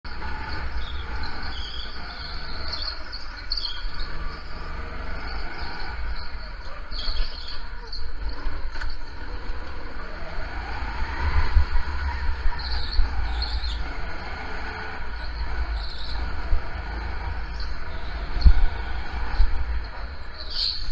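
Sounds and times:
go-kart engine revving: 0:00.0 - 0:20.9.

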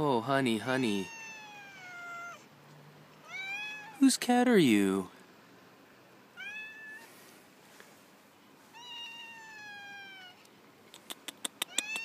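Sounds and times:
cat meowing: 0:00.8 - 0:02.5, 0:03.2 - 0:04.0, 0:06.4 - 0:07.1, 0:08.7 - 0:10.5, 0:11.6 - 0:12.0.

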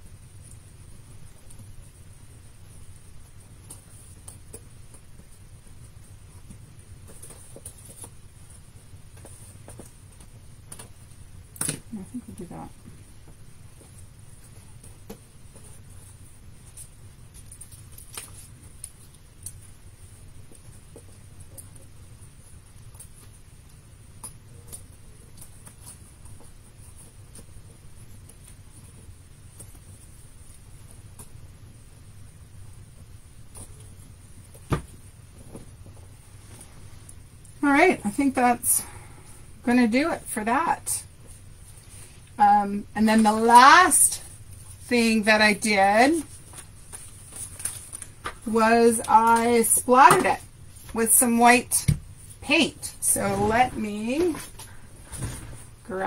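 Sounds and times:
steady low hum: 0:00.0 - 0:56.0
paper rustling: 0:46.1 - 0:48.5.

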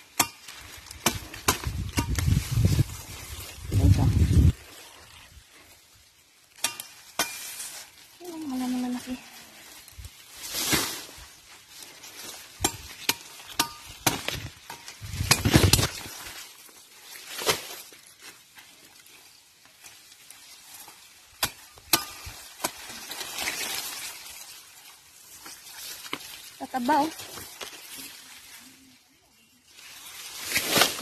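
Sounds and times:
rustling of leaves and grass: 0:00.0 - 0:31.0
plant stalks snapping: 0:00.1 - 0:03.5, 0:12.4 - 0:16.6, 0:17.2 - 0:18.1, 0:30.2 - 0:31.0.

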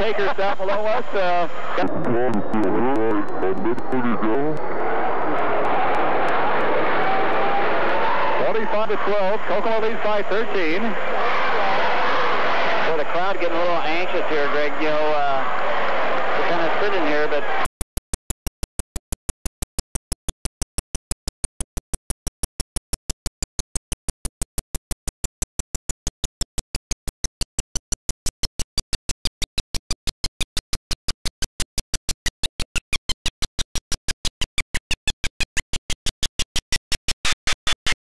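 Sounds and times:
rapid even clicking pulses: 0:17.7 - 0:38.0.

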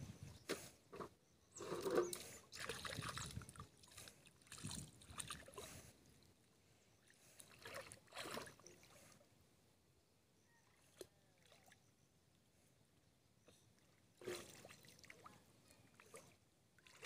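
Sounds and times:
muddy water splashing: 0:01.7 - 0:05.9, 0:07.2 - 0:09.2, 0:14.2 - 0:17.0.

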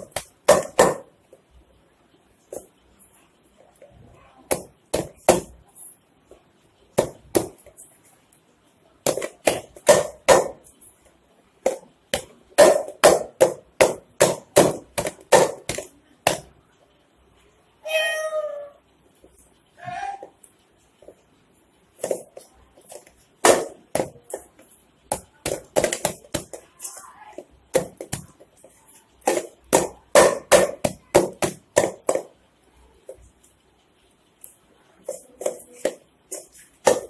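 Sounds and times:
dough kneading thumps: 0:00.0 - 0:01.6, 0:03.6 - 0:08.2, 0:09.0 - 0:16.6, 0:21.9 - 0:32.5, 0:35.0 - 0:37.0
cat meowing: 0:17.8 - 0:18.8.

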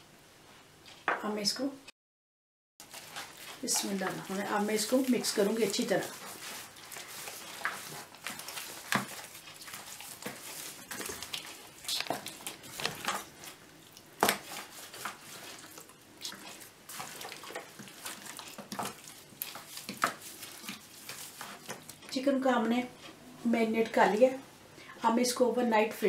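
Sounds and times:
gloved hand squelching marinade: 0:02.8 - 0:22.1.

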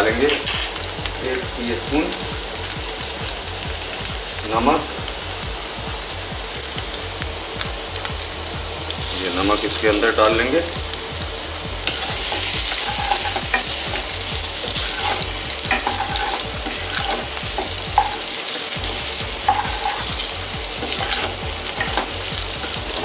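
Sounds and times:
potatoes sizzling in oil: 0:00.0 - 0:23.0
spatula scraping pan: 0:11.9 - 0:23.0.

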